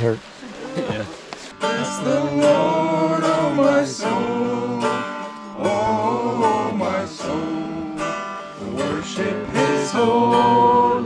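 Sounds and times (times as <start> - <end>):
strummed acoustic guitar: 0.0 - 11.0
small group singing: 0.8 - 11.0.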